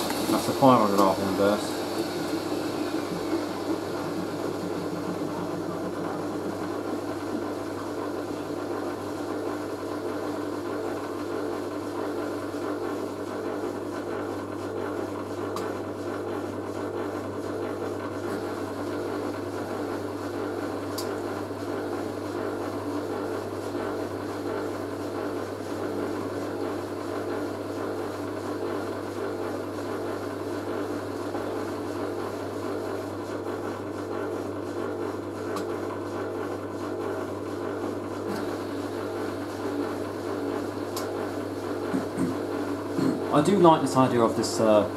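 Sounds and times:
washing machine drum tumbling: 0.0 - 8.9
washing machine motor hum: 0.0 - 44.9.

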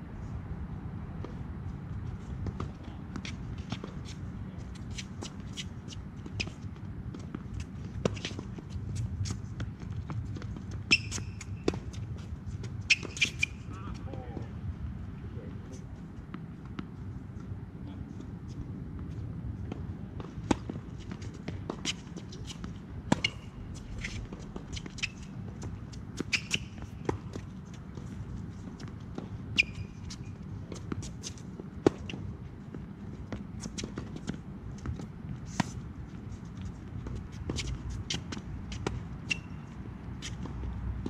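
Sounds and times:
shoe squeaks: 10.7 - 13.9, 21.8 - 27.4, 29.5 - 31.4, 37.1 - 40.7
racket hitting tennis ball: 20.2 - 27.4.

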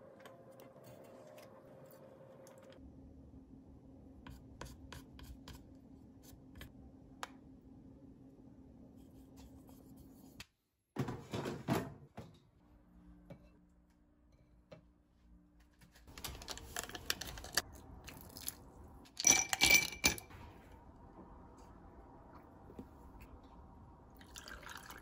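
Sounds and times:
ice cubes clinking in glass: 19.2 - 20.3.

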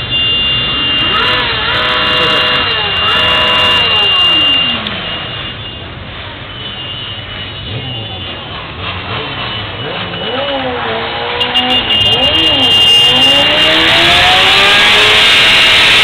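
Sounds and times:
engine revving: 0.6 - 5.0, 8.6 - 16.0.

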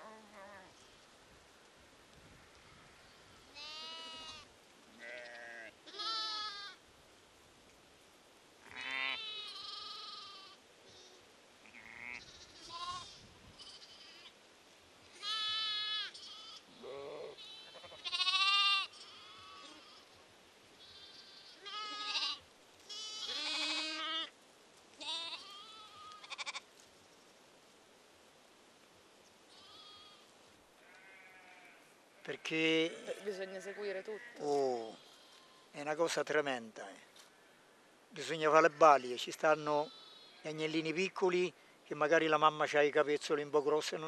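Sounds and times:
sheep and lambs bleating: 2.4 - 6.8, 8.6 - 14.4, 15.1 - 20.2, 20.8 - 24.4, 25.0 - 26.7, 29.5 - 35.8, 38.5 - 40.7.

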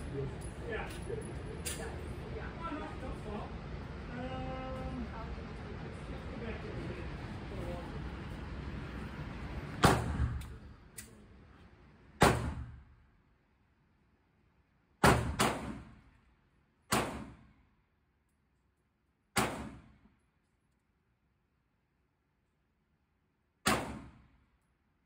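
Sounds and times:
gunshots with ringing tail: 9.8 - 10.4.

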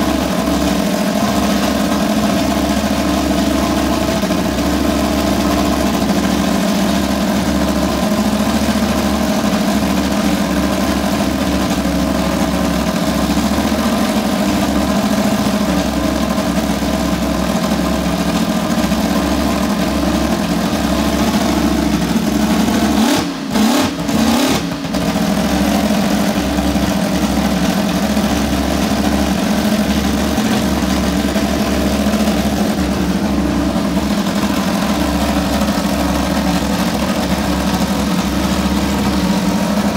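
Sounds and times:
racing engine idling: 0.0 - 39.9.

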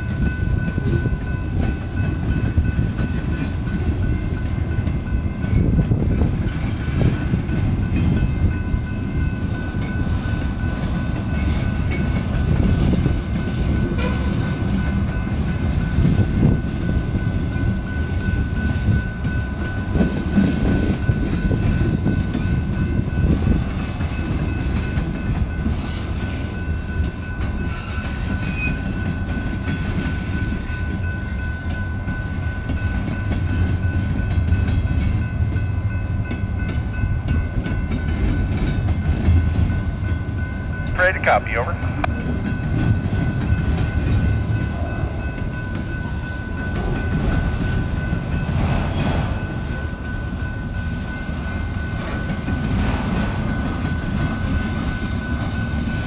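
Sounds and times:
train wheels rumbling: 0.0 - 56.0.

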